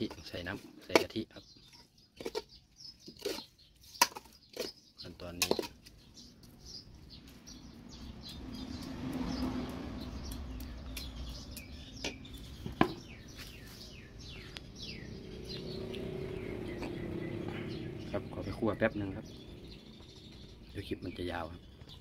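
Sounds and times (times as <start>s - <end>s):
small birds chirping: 0.0s - 22.0s
low rumble: 13.6s - 21.8s.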